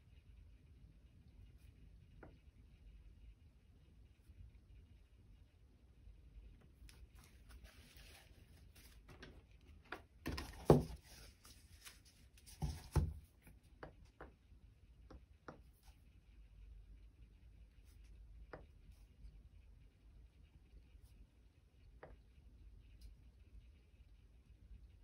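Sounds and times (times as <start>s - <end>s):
card rustling: 6.9s - 13.2s.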